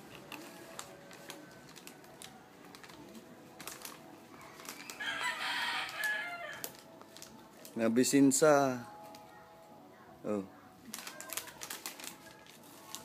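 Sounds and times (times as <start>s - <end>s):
foil snack bag rustling: 0.0s - 8.4s, 10.8s - 13.0s
rooster crowing: 4.8s - 6.7s.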